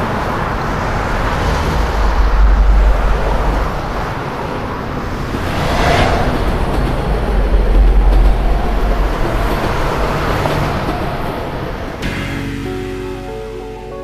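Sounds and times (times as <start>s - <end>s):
road traffic rushing and rumbling: 0.0s - 14.0s.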